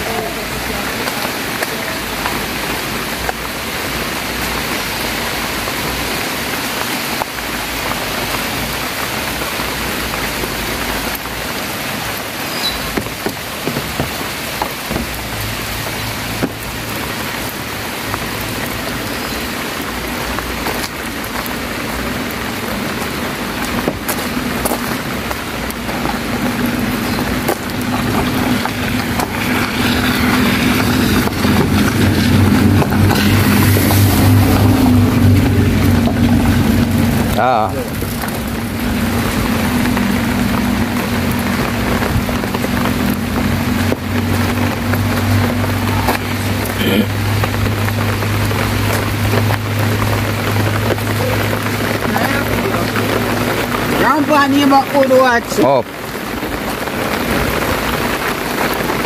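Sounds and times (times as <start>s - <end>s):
rain falling on road: 0.0s - 59.0s
truck engine approaching: 0.0s - 59.0s.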